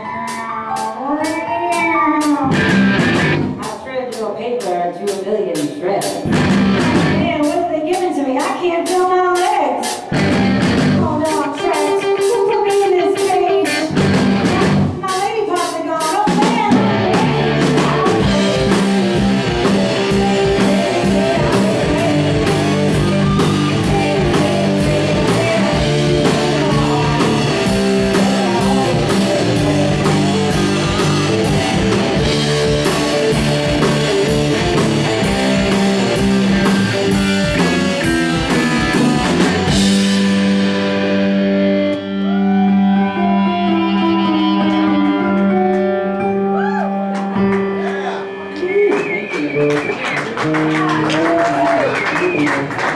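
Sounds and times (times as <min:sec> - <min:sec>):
woman singing: 0:00.0 - 0:02.6, 0:03.5 - 0:06.3, 0:06.9 - 0:10.0, 0:11.0 - 0:31.7
electric guitar: 0:00.0 - 0:03.9, 0:04.6 - 0:52.9
drum kit beat: 0:00.0 - 0:42.0, 0:46.6 - 0:52.9.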